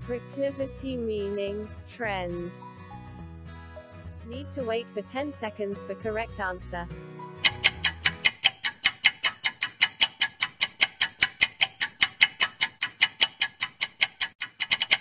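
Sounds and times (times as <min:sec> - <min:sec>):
rapid clock ticks: 0:07.4 - 0:15.0.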